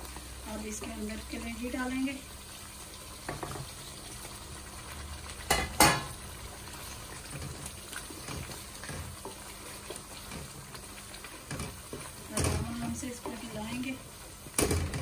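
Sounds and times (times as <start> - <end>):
masala sizzling in a pan: 0.0 - 15.0
wooden spoon stirring and scraping: 6.7 - 15.0.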